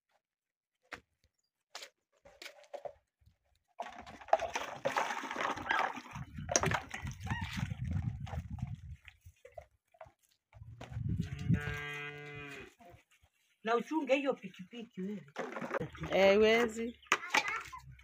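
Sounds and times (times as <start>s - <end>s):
water sloshing in metal basin: 3.8s - 10.3s.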